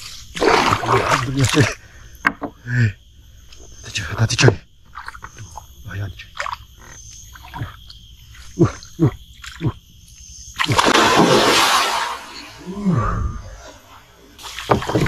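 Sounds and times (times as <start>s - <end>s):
frogs croaking: 0.0s - 15.0s.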